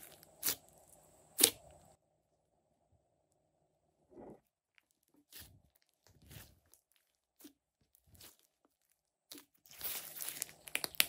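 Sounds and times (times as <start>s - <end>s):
slime squelching: 0.0s - 2.0s, 4.6s - 11.0s
slime crackling and popping: 4.8s - 11.0s.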